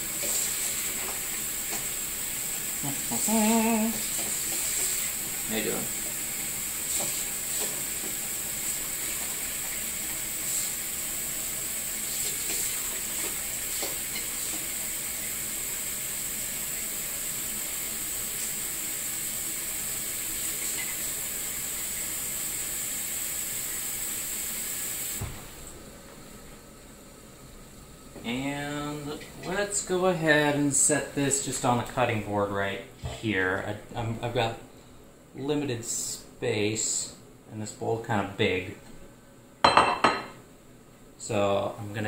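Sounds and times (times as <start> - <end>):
faucet running into bowl: 0.0 - 25.2.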